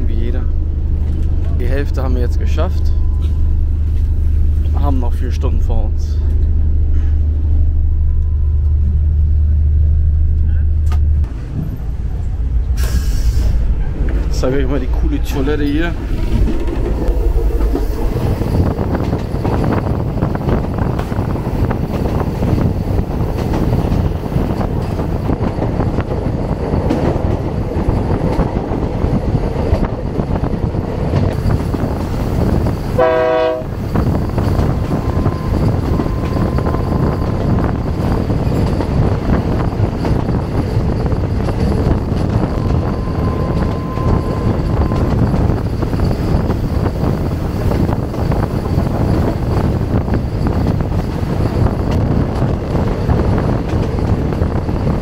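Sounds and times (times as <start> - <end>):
train rumbling and rattling: 0.0 - 55.0
train horn toot: 33.0 - 33.8.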